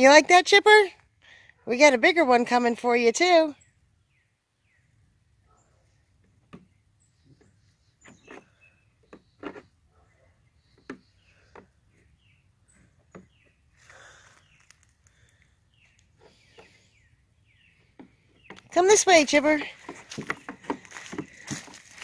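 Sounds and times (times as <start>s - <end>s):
small birds chirping: 3.2s - 22.0s
goat hooves tapping on plastic: 18.0s - 22.0s.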